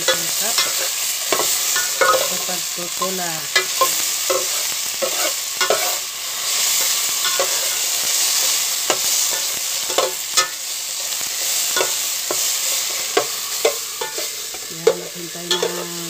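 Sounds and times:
ladle clinking and scraping pot: 0.0 - 2.4, 3.5 - 6.0, 11.7 - 16.0
vegetables sizzling in oil: 0.0 - 16.0.

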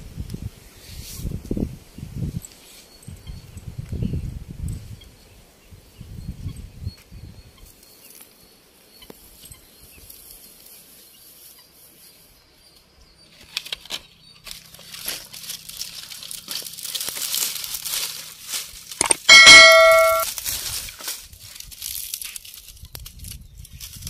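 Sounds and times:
dry straw rustling and crackling: 9.1 - 12.4, 13.3 - 24.0
click and bell ding effect: 19.0 - 20.2.

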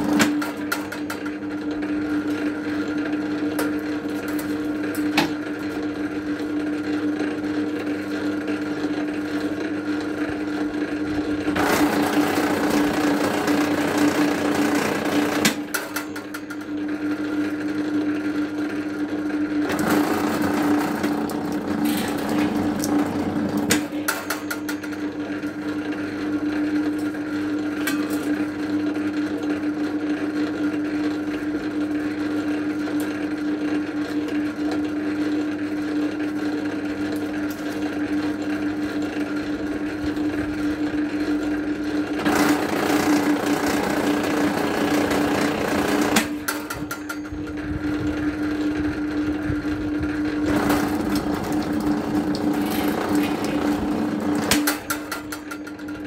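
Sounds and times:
cable-stripping machine motor hum: 0.0 - 6.6, 7.8 - 25.8, 37.0 - 56.0.

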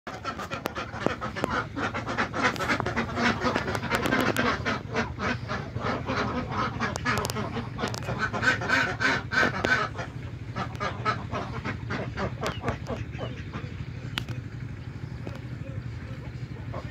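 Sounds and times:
ducks quacking: 0.1 - 16.9
steady low hum: 0.1 - 16.9.

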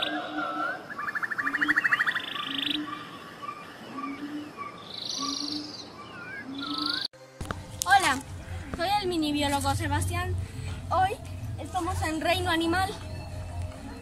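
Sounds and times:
frog pulsed trill: 0.0 - 3.2, 4.0 - 7.1
birds whistling: 0.0 - 7.1
frogs croaking: 0.0 - 7.1.

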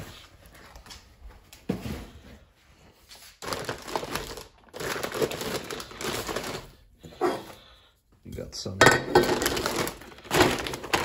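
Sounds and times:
paper and plastic wrap crinkling: 2.9 - 7.7, 9.1 - 11.0.

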